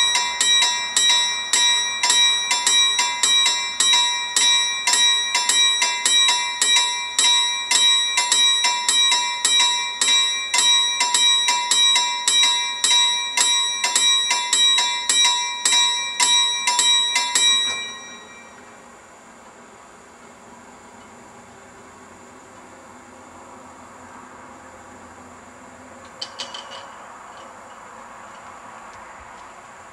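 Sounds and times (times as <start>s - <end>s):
level-crossing warning bell ringing: 0.0s - 18.8s, 26.0s - 28.5s
faint steady hiss: 15.8s - 29.9s.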